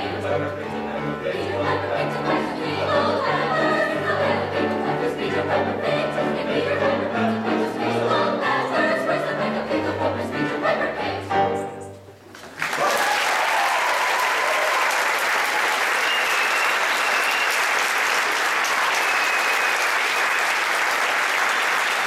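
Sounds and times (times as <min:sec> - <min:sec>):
choir singing: 0:00.0 - 0:11.9
audience applause: 0:12.3 - 0:22.0.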